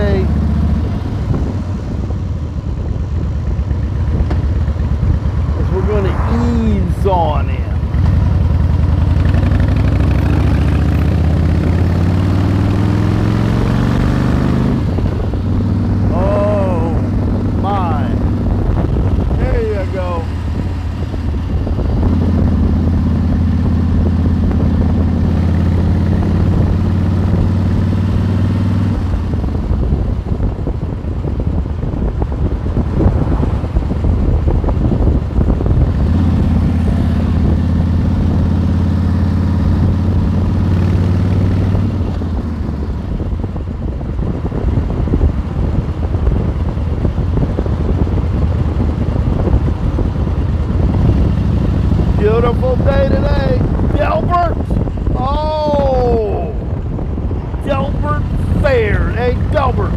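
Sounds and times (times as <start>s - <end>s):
motorcycle engine cruising: 0.0s - 59.9s
wind and road noise: 0.0s - 59.9s.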